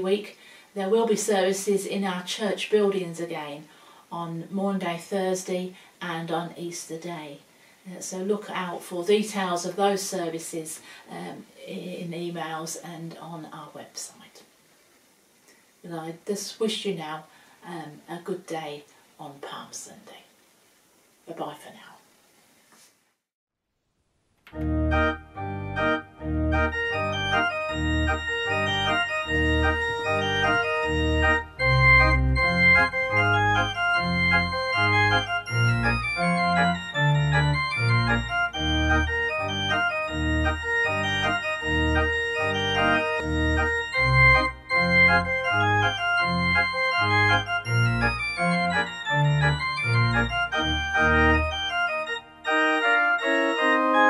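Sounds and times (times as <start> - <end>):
organ music: 24.5 - 54.0.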